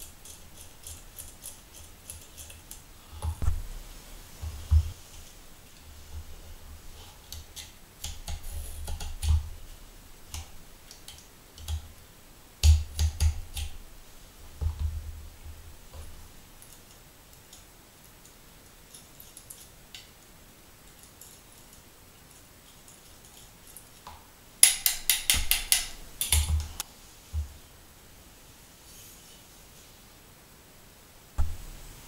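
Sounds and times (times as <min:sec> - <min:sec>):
metal clicks and taps: 0:24.0 - 0:26.8.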